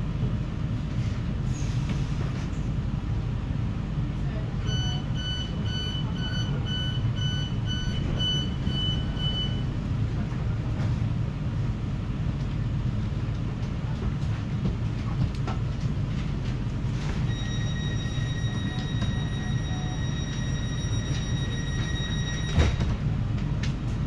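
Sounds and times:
train low rumble: 0:00.0 - 0:24.0
door warning beeps: 0:04.6 - 0:09.7, 0:17.2 - 0:23.0
steady high tone: 0:17.3 - 0:22.6.

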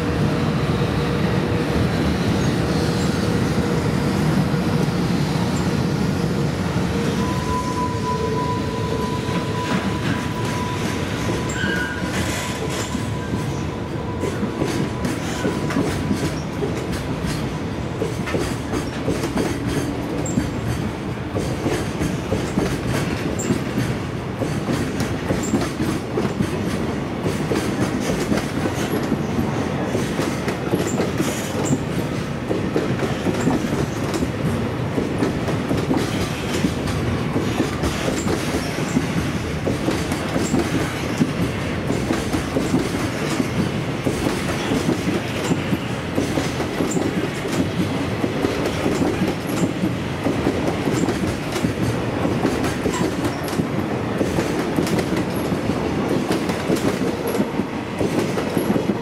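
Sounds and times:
high wheel squeaks: 0:07.2 - 0:13.8
train wheels clacking over rails: 0:08.3 - 0:59.0.

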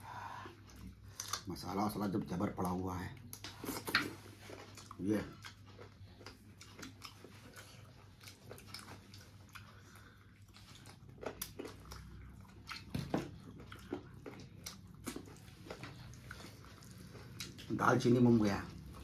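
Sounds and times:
person chewing food: 0:00.0 - 0:19.0.

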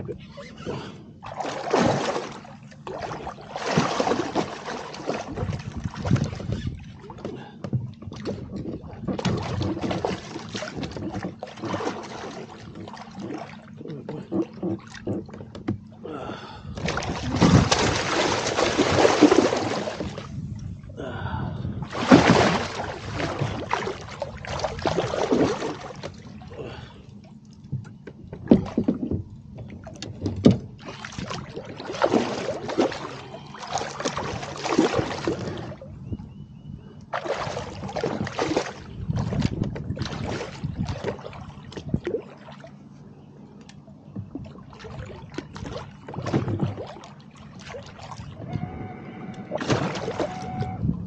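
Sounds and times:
steady low hum: 0:00.0 - 0:51.0
water sloshing and splashing: 0:00.0 - 0:51.0.

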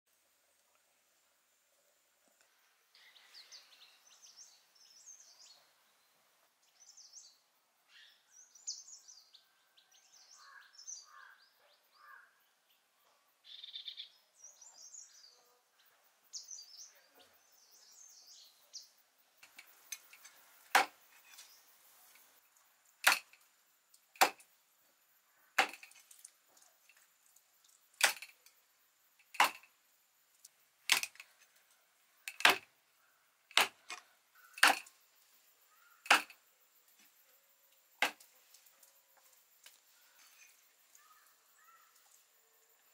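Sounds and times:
small birds chirping: 0:01.8 - 0:42.9
cleaver chopping bone on wood: 0:20.8 - 0:21.0, 0:23.0 - 0:23.3, 0:25.6 - 0:25.9, 0:34.6 - 0:34.9, 0:36.1 - 0:36.3.

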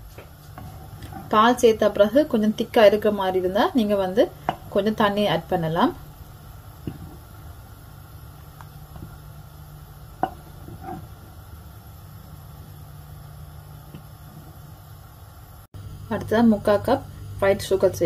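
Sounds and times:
steady low hum: 0:00.0 - 0:18.0
spoon knocking against pan: 0:10.2 - 0:11.0.

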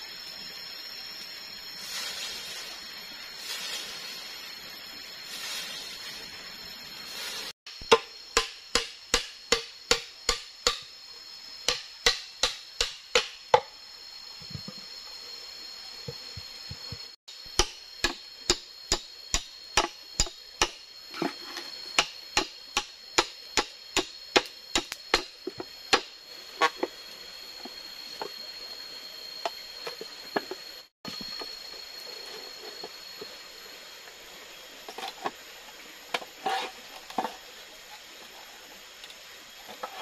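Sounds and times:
machete chopping bamboo: 0:07.7 - 0:10.9, 0:11.7 - 0:13.6, 0:17.5 - 0:20.8, 0:21.9 - 0:26.8.

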